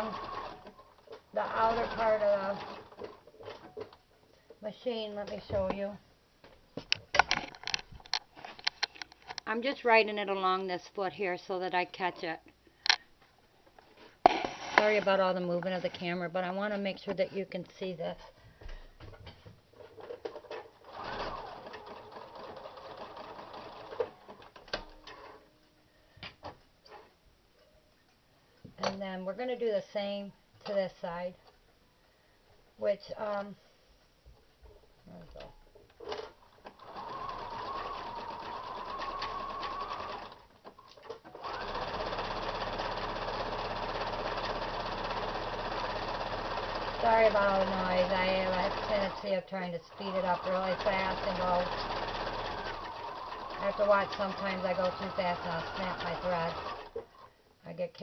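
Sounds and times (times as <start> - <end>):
sewing machine running: 0.0 - 0.7, 1.4 - 3.0, 20.8 - 24.5, 36.8 - 40.5, 41.4 - 49.3, 49.9 - 57.0.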